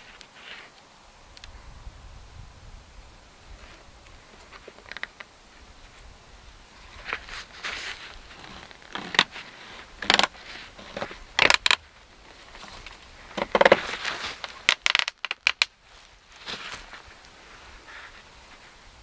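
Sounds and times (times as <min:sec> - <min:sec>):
foil tarp crinkling and rustling: 0:06.8 - 0:18.8
sharp crackles: 0:06.8 - 0:18.8.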